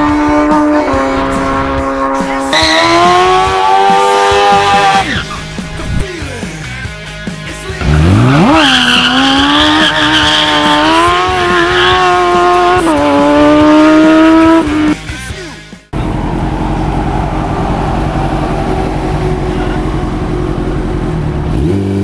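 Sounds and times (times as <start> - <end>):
motorcycle engine revving: 0.0 - 6.0, 7.8 - 15.0, 16.0 - 22.0
tyre squeal: 2.5 - 3.8, 8.4 - 12.2.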